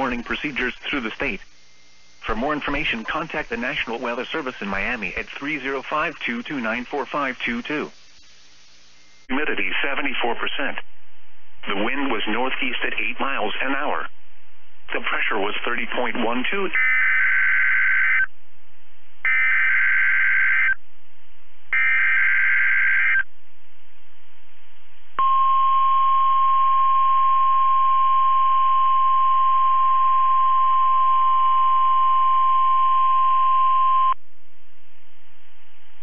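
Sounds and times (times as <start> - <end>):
steady warning alarm tone: 16.6 - 18.3, 19.3 - 20.8, 21.8 - 23.3
buzzy digital data bursts: 19.3 - 20.8, 21.8 - 23.2.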